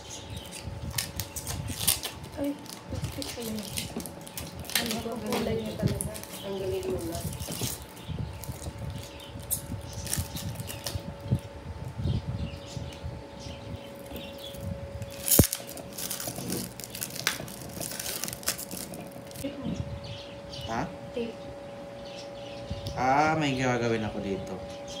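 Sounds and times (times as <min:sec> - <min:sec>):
plastic film crinkling: 0:00.0 - 0:11.3, 0:13.9 - 0:19.5.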